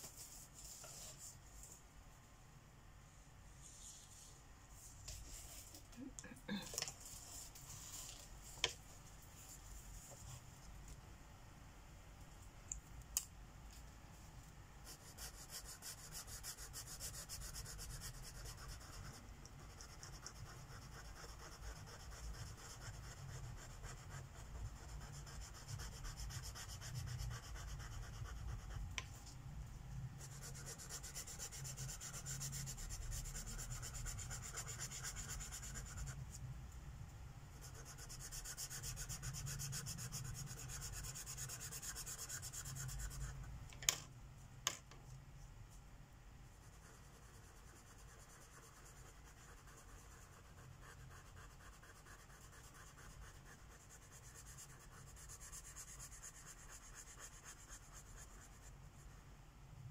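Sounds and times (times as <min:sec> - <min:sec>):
marker scratching on paper: 0:30.2 - 0:36.2, 0:37.6 - 0:43.4, 0:46.7 - 0:58.7.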